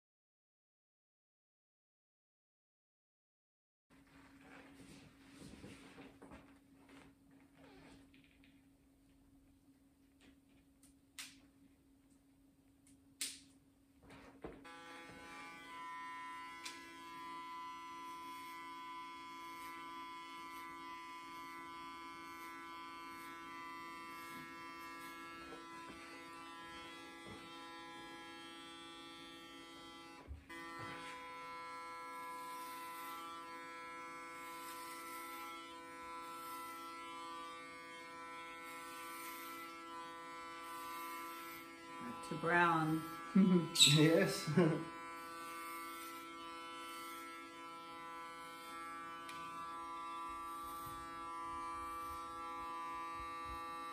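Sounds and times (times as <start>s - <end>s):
electric hair clippers buzzing: 14.4s - 53.9s.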